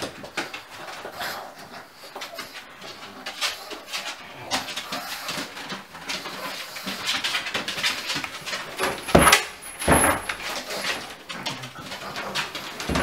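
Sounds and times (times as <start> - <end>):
dogs scuffling and rustling: 0.0 - 13.0.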